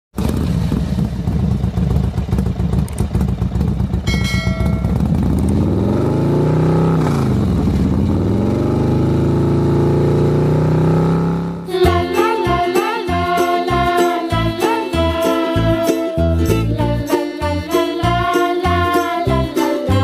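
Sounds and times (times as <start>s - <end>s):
motorcycle engine running roughly: 0.2s - 9.3s
brief chime: 4.1s - 5.1s.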